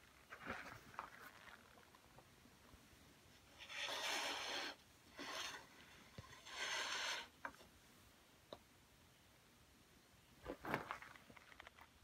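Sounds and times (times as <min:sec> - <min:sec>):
wood scraping on metal: 0:03.4 - 0:07.7.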